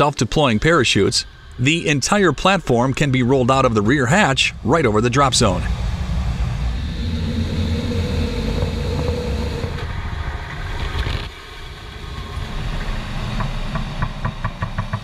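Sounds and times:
low rumble of aircraft engine: 0.0s - 15.0s.

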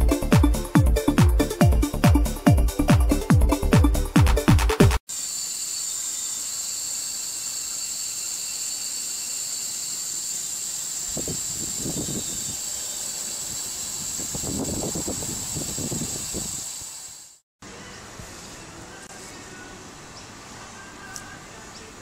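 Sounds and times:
high-pitched hiss: 5.1s - 17.4s
thin high whine: 5.1s - 19.7s.

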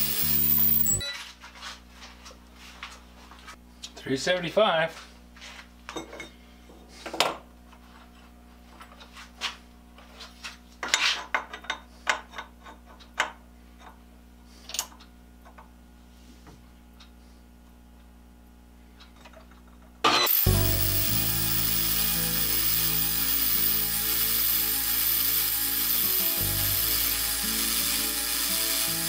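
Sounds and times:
loud music: 20.3s - 29.0s.

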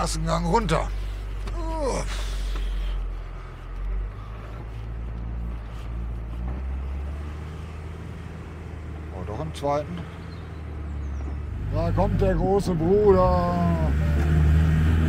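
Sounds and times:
van engine running: 0.0s - 15.0s.

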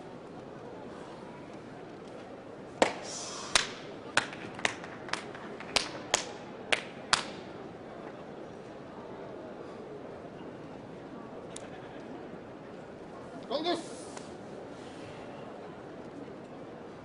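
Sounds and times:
hands slapping body: 2.8s - 7.4s.

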